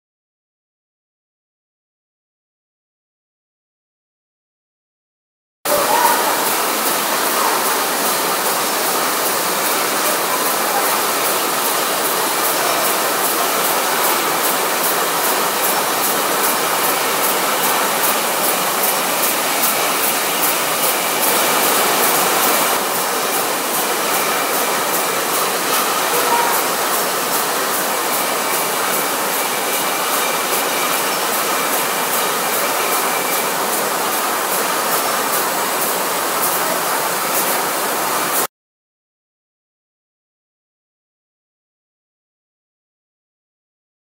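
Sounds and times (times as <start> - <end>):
machinery drone with hiss: 5.7 - 38.5.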